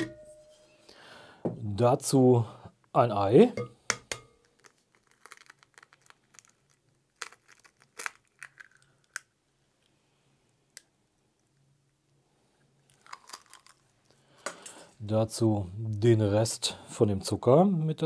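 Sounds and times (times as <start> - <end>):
eggshell cracking: 3.9 - 9.6, 12.8 - 14.1
faint eggshell clicks: 3.9 - 9.9.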